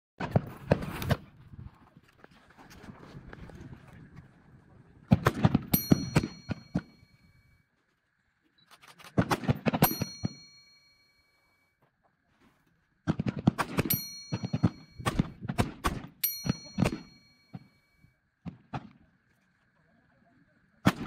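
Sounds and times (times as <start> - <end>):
rifle shots: 5.1 - 6.9, 9.1 - 10.3, 13.1 - 17.1
metallic ring: 5.7 - 7.6, 9.8 - 11.8, 13.8 - 15.4, 16.2 - 18.1.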